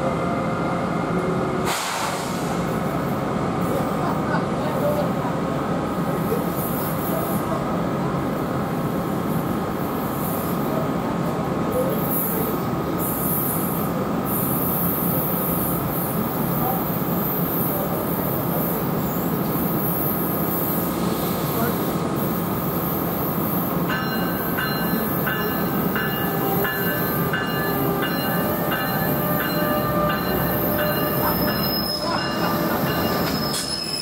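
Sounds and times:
train wheels rumbling on rail: 0:00.0 - 0:34.0
thin steady squeal: 0:24.0 - 0:34.0.

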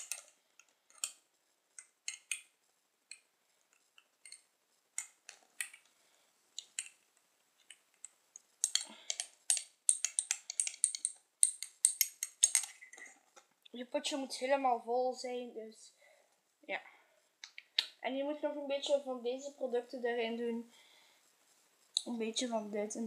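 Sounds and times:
teaspoon stirring in a jar: 0:01.8 - 0:02.5, 0:03.1 - 0:04.4, 0:06.6 - 0:07.0, 0:08.6 - 0:13.3.

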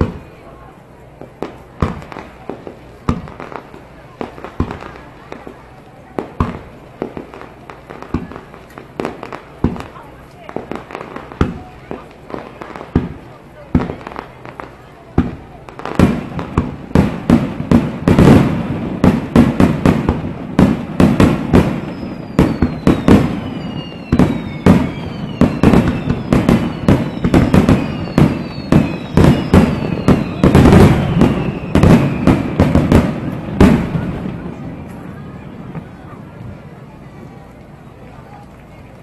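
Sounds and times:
falling firework whistles: 0:20.0 - 0:34.0.

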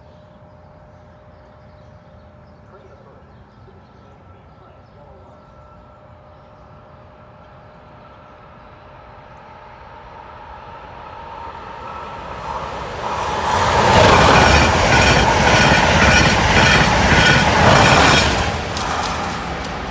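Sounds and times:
train passing at high speed: 0:06.1 - 0:19.9.

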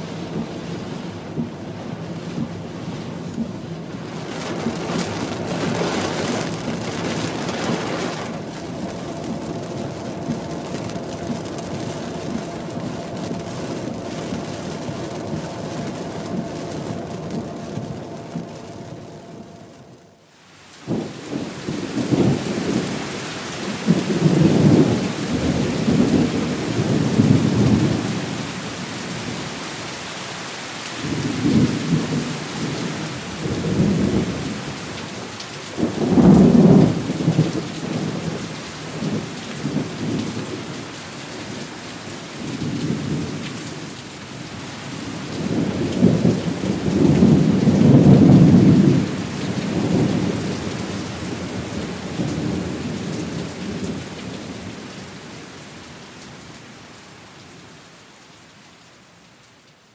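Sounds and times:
thunder rolling: 0:00.0 - 0:20.2, 0:35.8 - 0:40.8, 0:45.0 - 0:54.1
rain hiss: 0:00.0 - 0:59.9.

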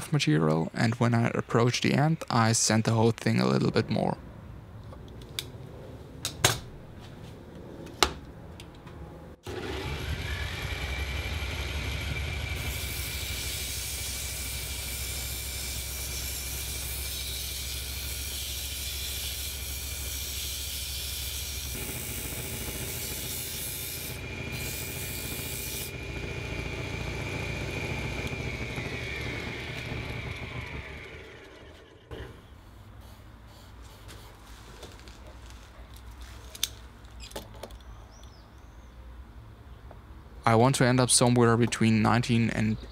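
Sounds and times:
lathe motor humming and whining: 0:09.5 - 0:20.1, 0:21.4 - 0:32.3
sandpaper hissing on wood: 0:12.6 - 0:21.8.

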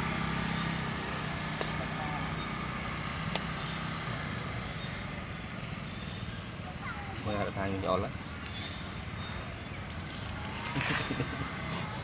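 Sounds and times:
low motor hum: 0:00.0 - 0:06.7
outdoor background noise: 0:00.0 - 0:12.0.

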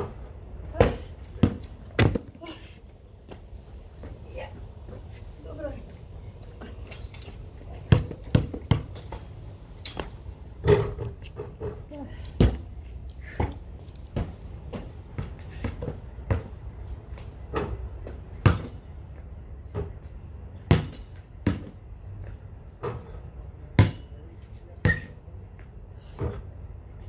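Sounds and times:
basketball bouncing on concrete: 0:00.0 - 0:02.4, 0:07.4 - 0:18.8, 0:19.7 - 0:24.2, 0:24.8 - 0:25.2.

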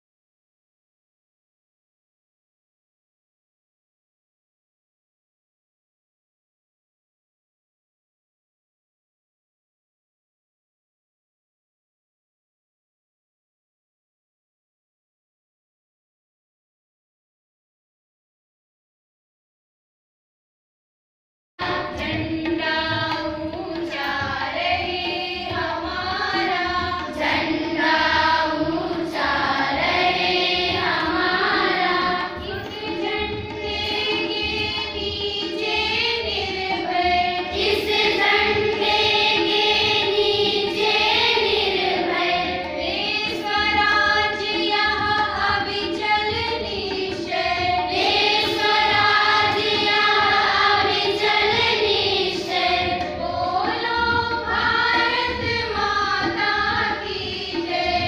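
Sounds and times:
girls and women singing in chorus: 0:21.6 - 0:58.0.

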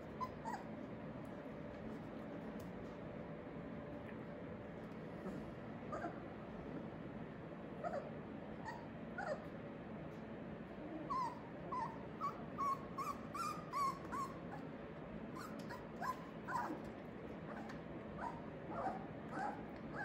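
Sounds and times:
puppies whimpering and yipping: 0:00.0 - 0:00.8, 0:07.8 - 0:09.5, 0:11.0 - 0:14.6, 0:15.4 - 0:16.9, 0:17.5 - 0:20.0.

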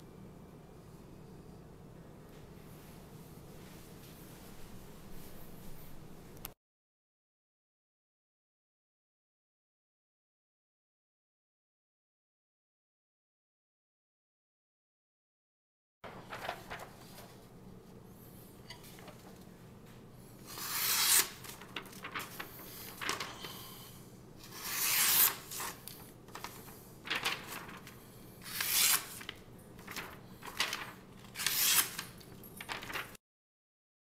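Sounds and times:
knife slicing paper: 0:20.4 - 0:23.5, 0:24.4 - 0:33.2.

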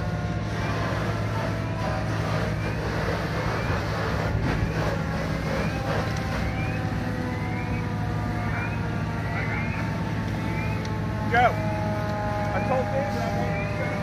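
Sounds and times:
diesel engine running: 0:00.0 - 0:14.0
hiss of water and steam: 0:00.4 - 0:06.9.

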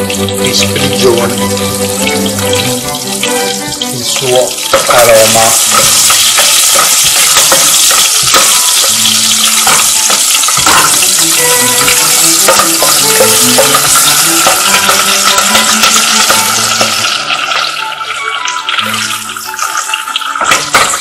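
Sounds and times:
garlic sizzling in hot oil: 0:00.0 - 0:21.0
wooden spoon stirring: 0:03.2 - 0:17.7.

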